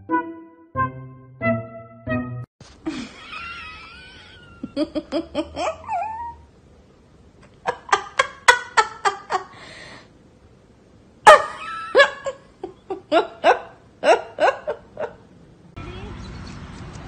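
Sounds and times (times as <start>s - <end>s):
dog yelp: 5.8s - 6.4s
dog whining and yipping: 5.8s - 6.5s.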